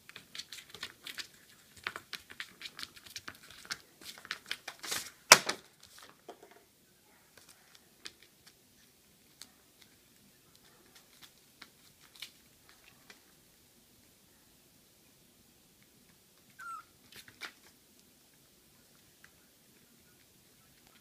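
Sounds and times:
paws scrambling over papers: 0.0s - 5.2s, 7.2s - 13.3s
paper crinkling: 0.0s - 6.2s, 7.4s - 13.3s.

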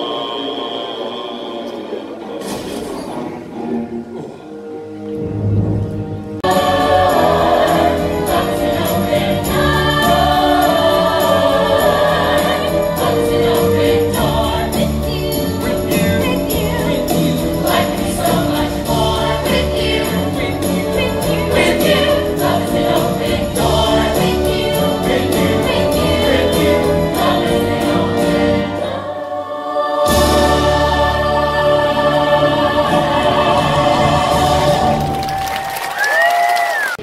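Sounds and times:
choir singing: 0.0s - 2.3s, 3.7s - 35.6s
orchestral music: 0.0s - 36.0s
rhythmic percussion: 6.4s - 29.1s, 30.0s - 36.6s.

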